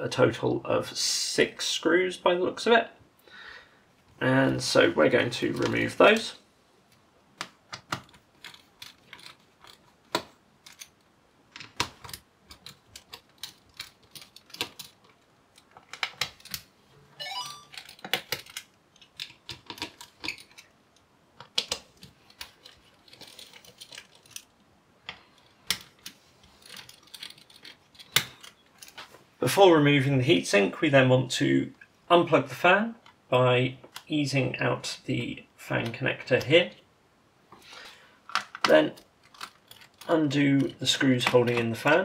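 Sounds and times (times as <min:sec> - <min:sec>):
rising squeak: 0:17.1 - 0:17.8.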